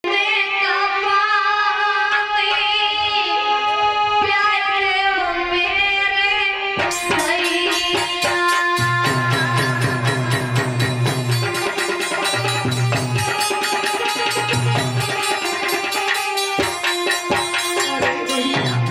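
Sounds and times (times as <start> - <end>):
woman singing into a microphone: 0.0 - 18.9
rhythmic percussion strikes: 6.8 - 18.9.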